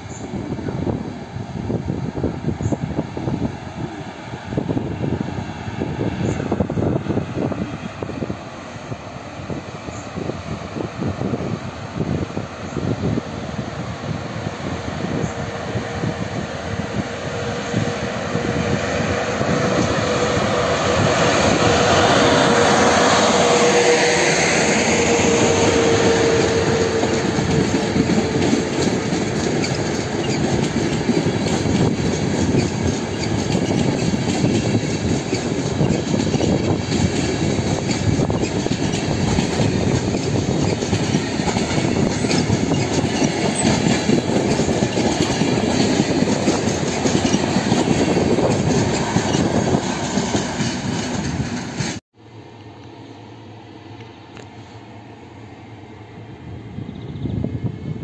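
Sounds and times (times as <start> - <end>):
electric locomotive whine: 0.0 - 58.0
train wheels clickety-clack: 15.0 - 52.0.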